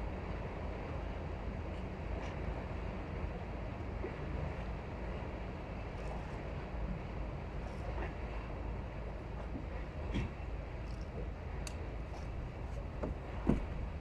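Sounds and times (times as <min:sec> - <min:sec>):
faint constant hum: 0:00.0 - 0:14.0
low outdoor rumble: 0:00.0 - 0:14.0
faint ticks: 0:10.9 - 0:12.3.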